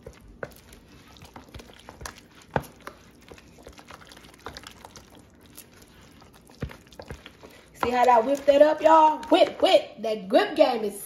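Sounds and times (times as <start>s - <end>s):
spoon stirring mashed potatoes: 0.0s - 10.0s.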